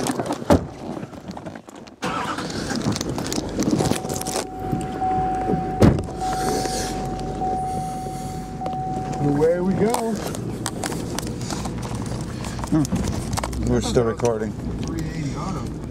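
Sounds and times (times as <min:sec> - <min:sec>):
knocks and rustling from handling: 0:00.0 - 0:02.0
car engine running: 0:02.0 - 0:15.9
high electronic tone: 0:03.8 - 0:09.9.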